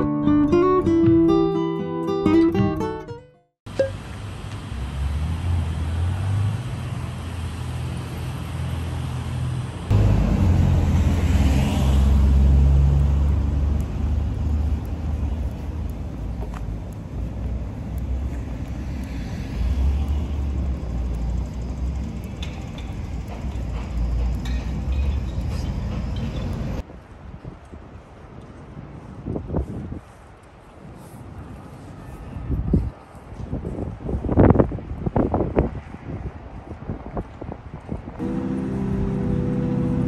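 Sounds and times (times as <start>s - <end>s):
road traffic passing: 3.7s - 27.2s, 27.8s - 40.0s
wind on microphone: 26.4s - 40.0s.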